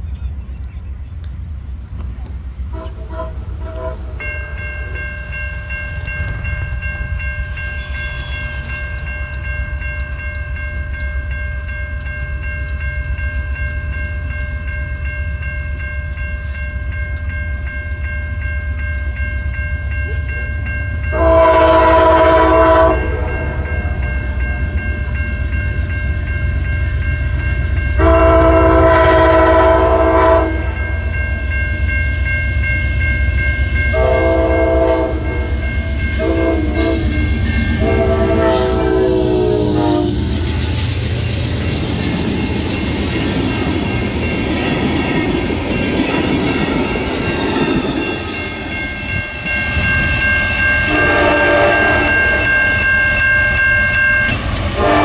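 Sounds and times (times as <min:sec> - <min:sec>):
train air horn blasts: 0:02.7 - 0:04.3, 0:21.1 - 0:23.9, 0:28.0 - 0:31.0, 0:33.9 - 0:40.5, 0:50.8 - 0:52.6, 0:54.8 - 0:55.0
high ringing tone: 0:04.2 - 0:55.0
low rumble: 0:35.2 - 0:45.9.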